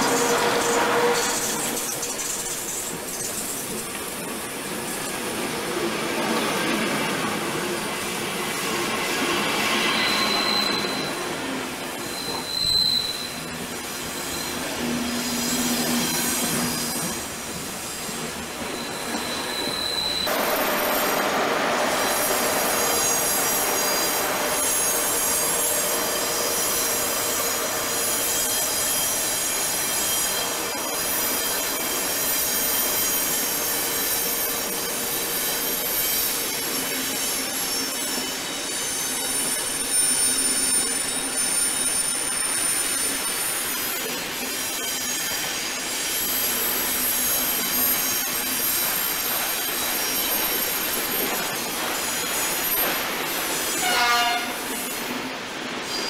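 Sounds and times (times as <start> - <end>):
train rumble: 0.0 - 12.6
train wheels squealing on rails: 0.0 - 56.0.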